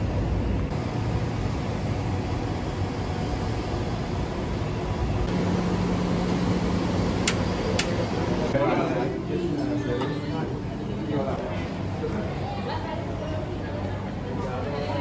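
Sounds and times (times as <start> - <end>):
city traffic rumble: 0.0 - 15.0.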